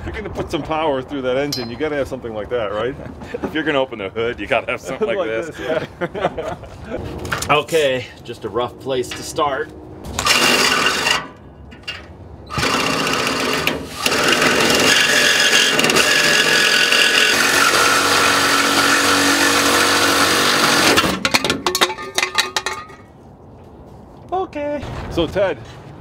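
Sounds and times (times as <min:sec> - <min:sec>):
reciprocating saw cutting metal pipe: 0:10.1 - 0:11.5, 0:12.5 - 0:21.6.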